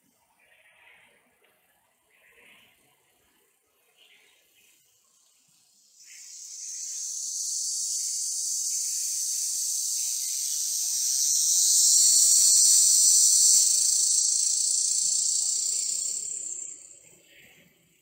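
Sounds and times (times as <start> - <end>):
high-pitched insect buzz: 5.8 - 17.2.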